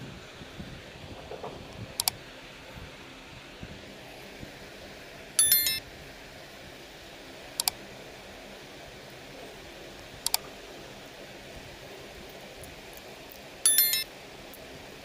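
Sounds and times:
steady low hiss: 0.0s - 15.0s
mouse double clicks: 2.0s - 2.2s, 7.6s - 7.8s.

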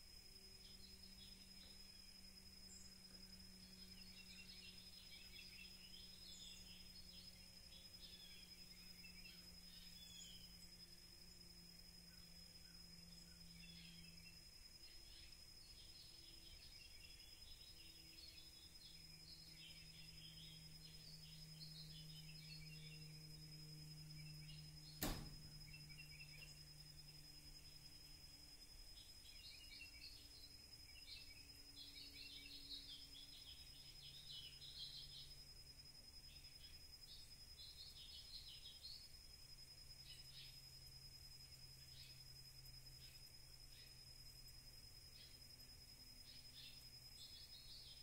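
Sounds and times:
soft bird chirps: 0.0s - 48.0s
steady low hum: 0.0s - 48.0s
sharp knock: 25.0s - 25.4s.

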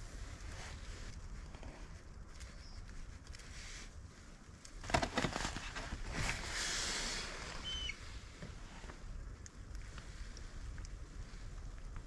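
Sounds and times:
rustling hiss: 0.0s - 12.0s
bird chirp: 7.6s - 8.0s.

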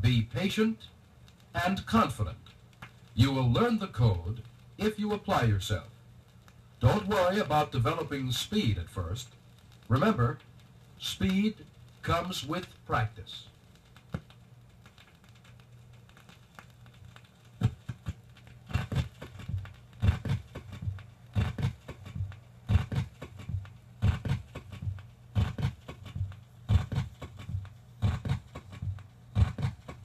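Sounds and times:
steady low hum: 0.0s - 30.0s
low rhythmic thumps: 17.6s - 30.0s.

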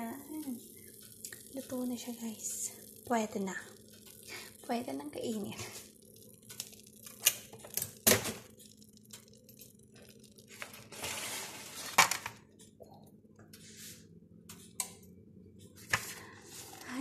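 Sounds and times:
crisp crackling: 0.2s - 12.2s.

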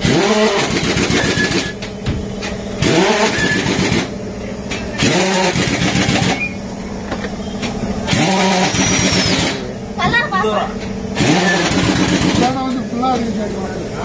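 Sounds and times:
motor winding up in pitch: 2.8s - 4.1s, 8.1s - 9.6s, 11.2s - 12.6s.

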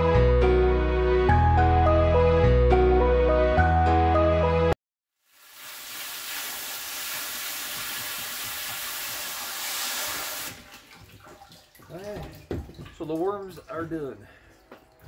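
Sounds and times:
background music: 0.0s - 4.8s
water spraying from a hose: 5.2s - 10.8s.

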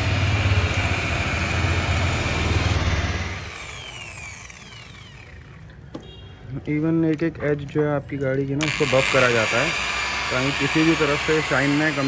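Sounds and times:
car polisher motor humming: 0.0s - 5.6s, 8.6s - 12.0s
motor winding down whine: 0.0s - 5.6s, 8.6s - 12.0s.

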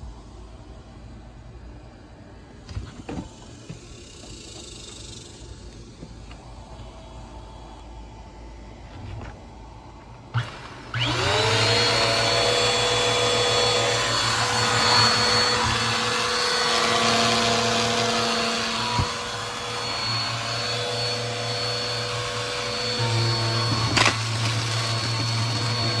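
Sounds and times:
vacuum cleaner motor whining: 10.3s - 26.0s.

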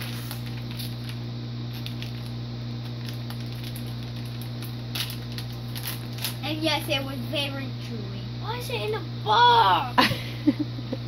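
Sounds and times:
candy wrapper rustling: 0.0s - 6.4s
low room hum: 0.0s - 11.0s.

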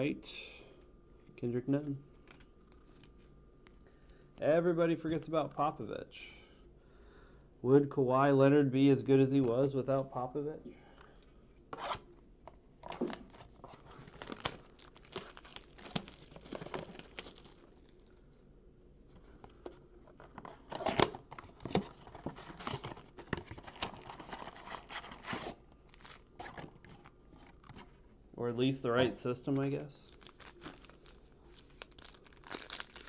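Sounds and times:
cardboard box tearing and crinkling: 12.9s - 17.7s, 30.1s - 33.0s.

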